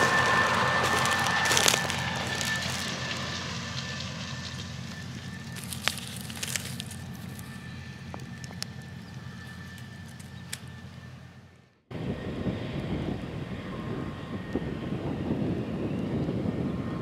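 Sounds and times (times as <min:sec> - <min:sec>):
crackling dry corn stalks: 0:00.0 - 0:11.2
tractor pulling rotary hoe: 0:00.0 - 0:11.2
low steady hum: 0:00.0 - 0:15.1.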